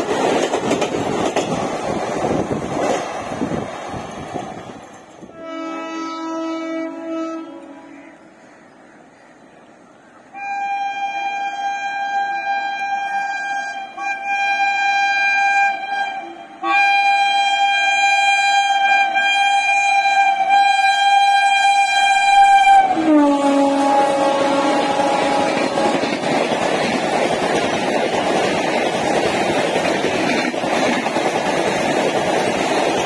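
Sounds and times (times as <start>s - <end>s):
locomotive air horn: 5.2s - 8.4s, 10.3s - 26.2s.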